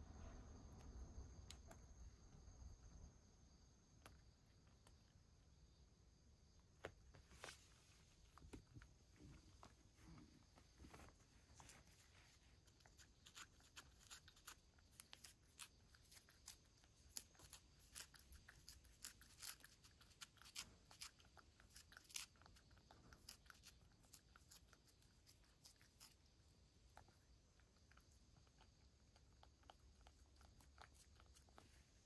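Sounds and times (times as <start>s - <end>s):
cat licking: 7.9s - 32.0s.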